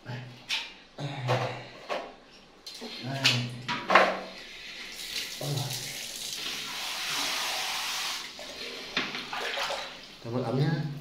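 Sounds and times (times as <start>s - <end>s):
water running from tap into basin: 4.8s - 10.2s.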